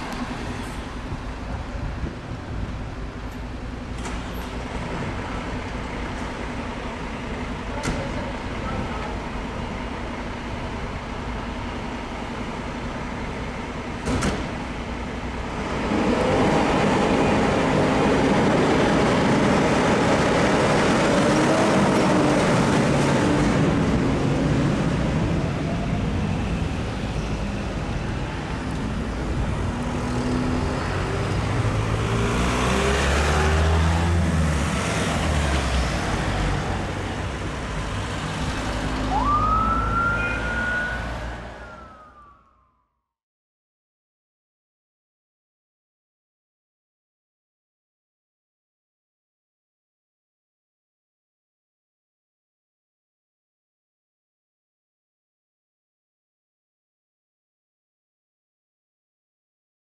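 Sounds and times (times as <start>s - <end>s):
diesel engine idling and revving: 0.0s - 42.4s.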